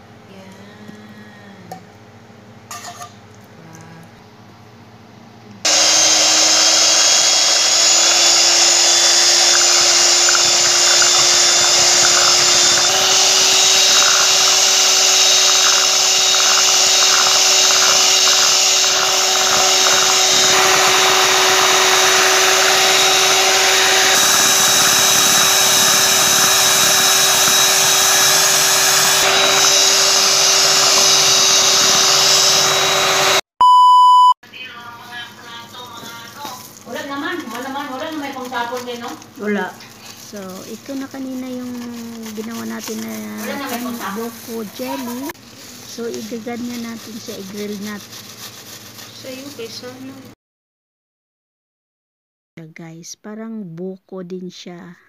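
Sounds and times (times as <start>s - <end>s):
electric hand mixer running: 5.6s - 33.5s, 36.7s - 50.4s.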